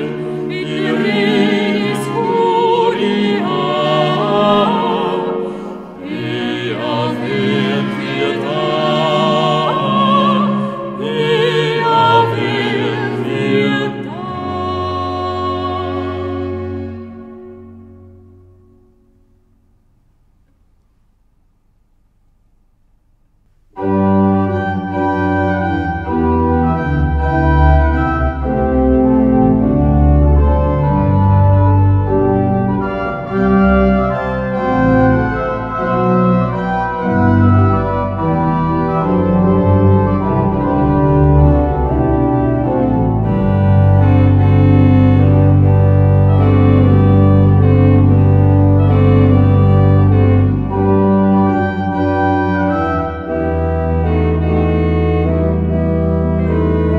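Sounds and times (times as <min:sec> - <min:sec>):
pipe organ playing chords: 0:00.0 - 0:19.8, 0:23.7 - 0:56.9.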